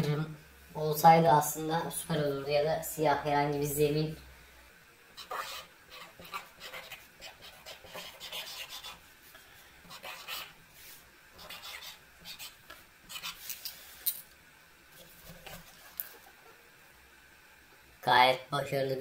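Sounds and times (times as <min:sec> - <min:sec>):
marker scratching on cardboard: 0:05.2 - 0:09.0, 0:09.9 - 0:10.6, 0:11.4 - 0:13.4.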